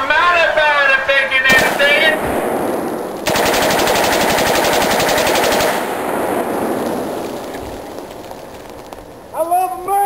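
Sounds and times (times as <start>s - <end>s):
rifle firing rapid shots: 1.5s - 7.5s
gunshot echo: 1.5s - 7.6s.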